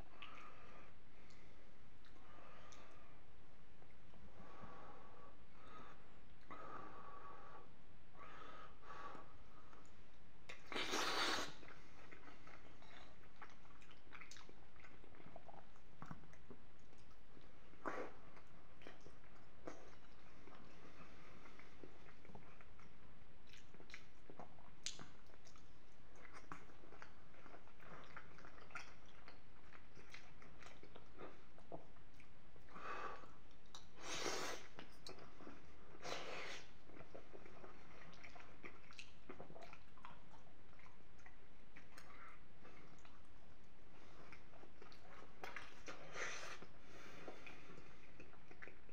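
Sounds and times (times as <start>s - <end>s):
man chewing food: 8.9s - 48.9s
hissing mouth noise: 10.7s - 11.6s, 34.0s - 34.8s
wet mouth clicks and smacks: 23.5s - 27.1s.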